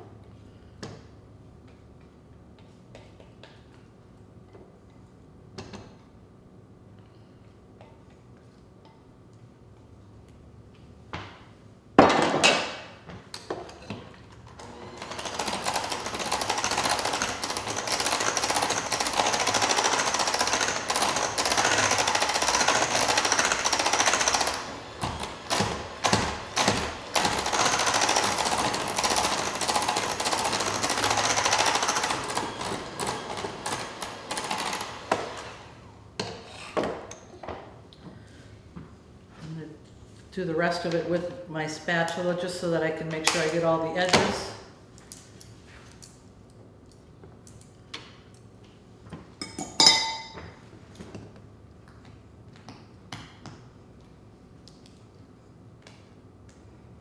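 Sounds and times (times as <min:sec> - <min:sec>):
electric hand mixer beating batter: 0:14.5 - 0:35.7.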